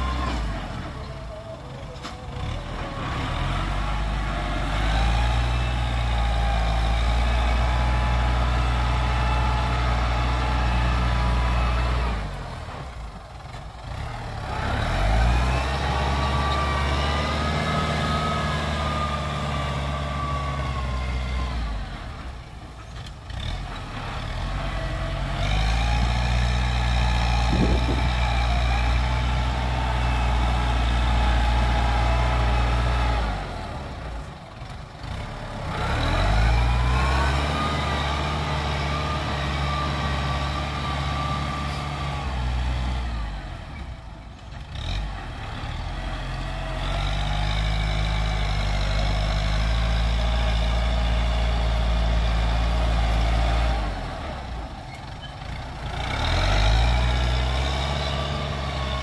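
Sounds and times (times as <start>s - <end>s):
tractor diesel engine under load: 0.0s - 59.0s
high engine whine: 24.6s - 34.6s.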